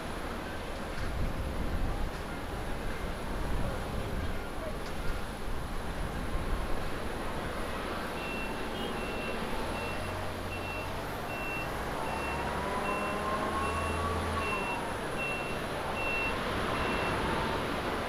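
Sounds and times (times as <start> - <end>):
reversing beeper beeps: 8.2 - 17.3.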